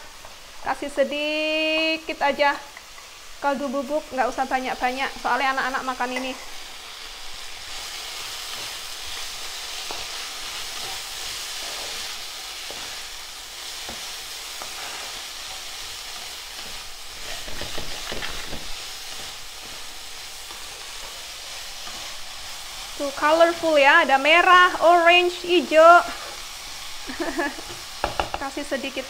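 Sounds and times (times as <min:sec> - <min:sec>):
vegetables sizzling in a frying pan: 0:00.0 - 0:29.0
spatula scraping and tapping pan: 0:13.8 - 0:19.9, 0:27.6 - 0:28.5.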